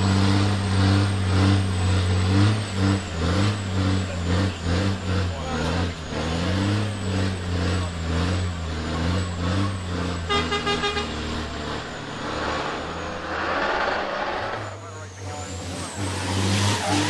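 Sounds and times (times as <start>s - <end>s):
horn short pulses: 10.2s - 11.4s.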